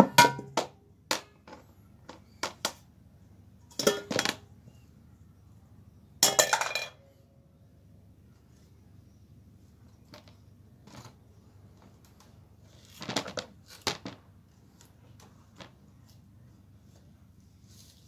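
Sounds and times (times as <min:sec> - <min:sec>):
metal bowl clattering on floor: 0:00.0 - 0:00.6, 0:03.7 - 0:04.4, 0:06.2 - 0:07.0.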